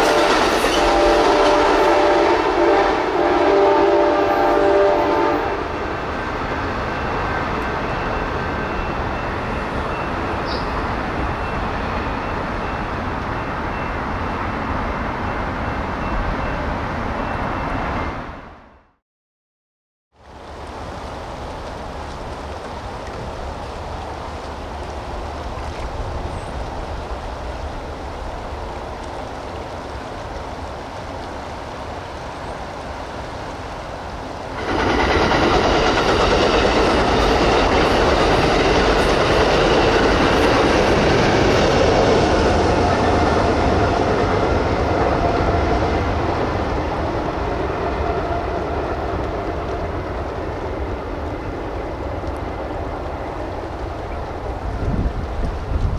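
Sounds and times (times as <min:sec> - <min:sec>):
train wheels clacking on rails: 0:00.0 - 0:03.6, 0:34.5 - 0:55.9
ringing hum of train: 0:00.0 - 0:18.9, 0:20.3 - 0:55.9
moving water: 0:20.1 - 0:55.9
wind on microphone: 0:52.0 - 0:55.9.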